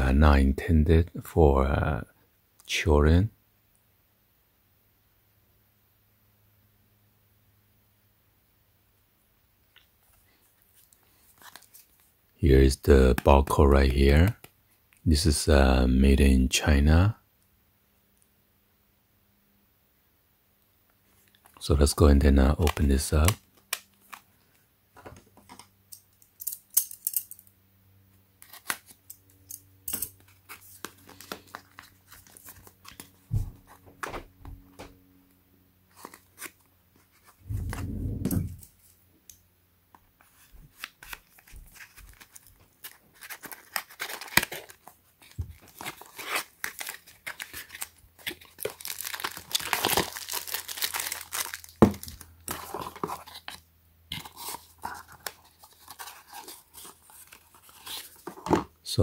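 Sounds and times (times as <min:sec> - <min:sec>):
cardboard tearing and paper rustling: 0:40.7 - 0:58.5.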